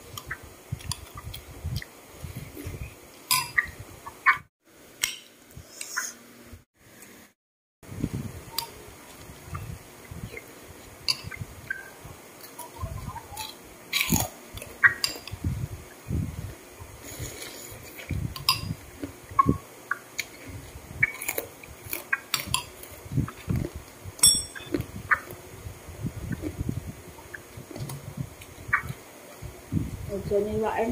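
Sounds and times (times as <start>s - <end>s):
person chewing: 20.1s - 23.8s, 24.6s - 25.3s
metal spoon clinking against bowl: 24.2s - 24.8s.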